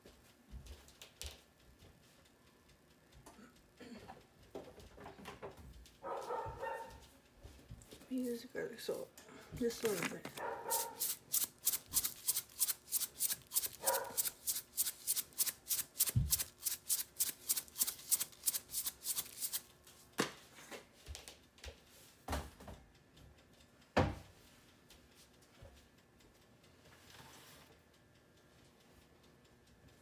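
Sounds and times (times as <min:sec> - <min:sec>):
salt shaker shaking: 0:10.6 - 0:19.7.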